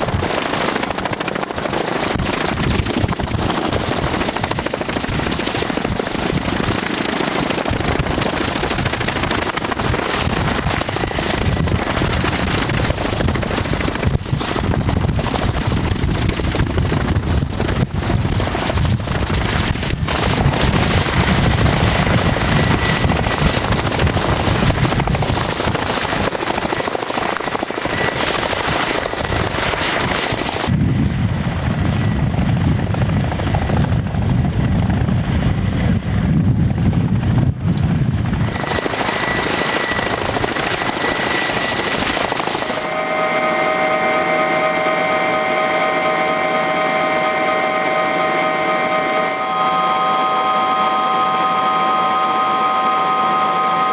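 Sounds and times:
helicopter rushing noise: 0.0 - 53.9
helicopter turbine engines whining: 0.0 - 53.9.

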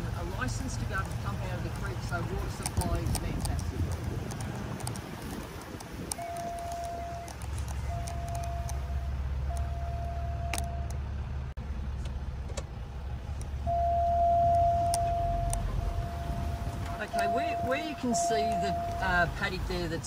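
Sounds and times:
low rumble of car moving: 0.0 - 20.0
parking sensor beeps: 6.1 - 11.0, 13.6 - 19.8.

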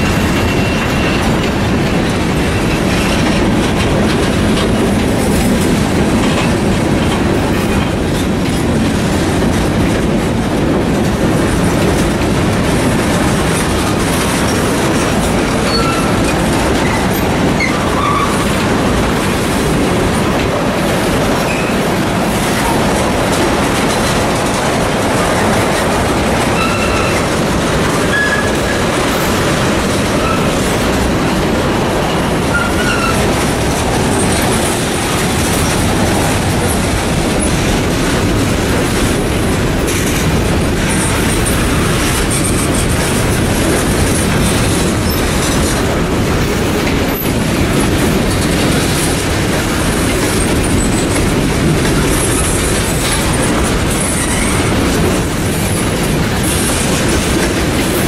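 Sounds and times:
train wheels rumbling on rail: 0.0 - 58.0
wheels clacking over rail joints: 0.0 - 58.0
high wheel squeals: 15.6 - 18.5, 32.1 - 33.3.

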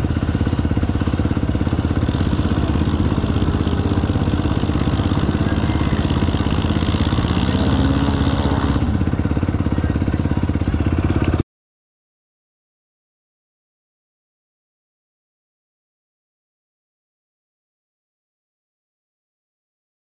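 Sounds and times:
vehicle engine running: 0.0 - 11.4.

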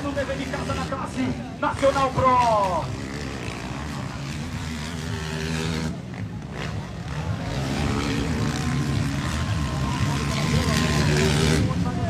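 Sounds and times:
motocross bike engines buzzing: 0.0 - 12.0.

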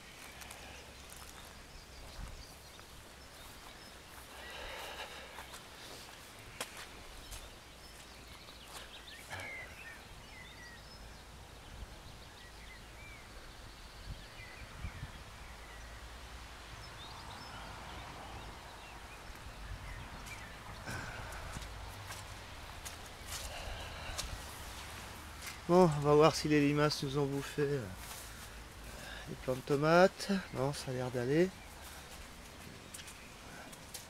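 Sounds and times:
bird chirps: 7.1 - 14.8.

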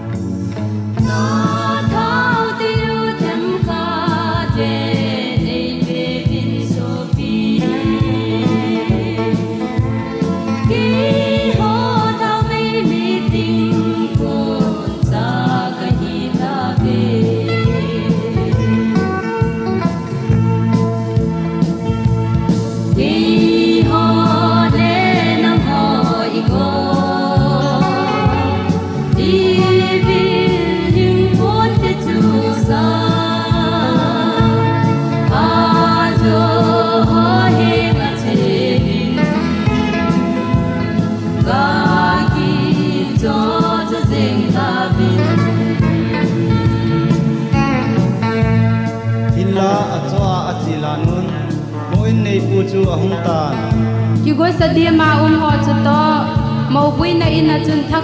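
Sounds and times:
gospel choir singing: 0.0 - 20.8, 21.5 - 52.5, 53.7 - 58.0
person singing: 1.0 - 9.8, 23.0 - 28.5
backing track with bass and beat: 7.0 - 57.8.

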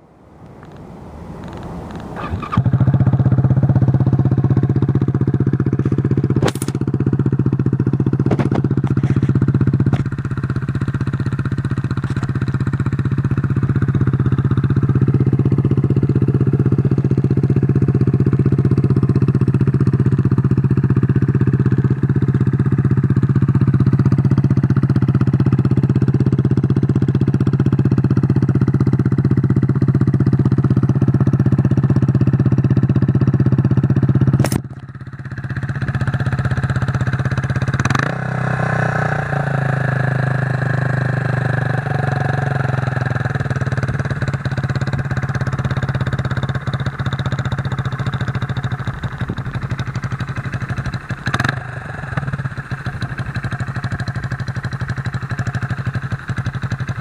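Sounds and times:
motorcycle engine idling: 0.3 - 57.0
sharp click: 6.4 - 6.8, 34.4 - 34.9.

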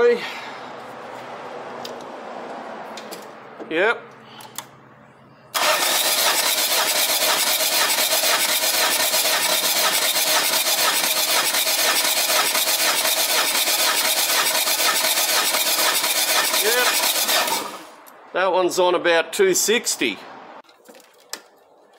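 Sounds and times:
diesel engine running: 4.2 - 18.1
starter motor cranking: 5.6 - 18.0.

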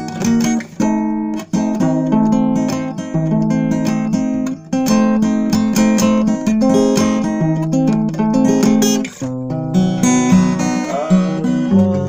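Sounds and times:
acoustic guitar: 0.0 - 12.0.

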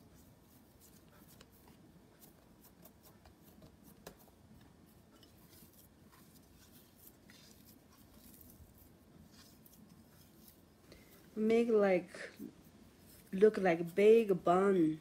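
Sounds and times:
soft clicks and taps of dough: 0.1 - 11.6.

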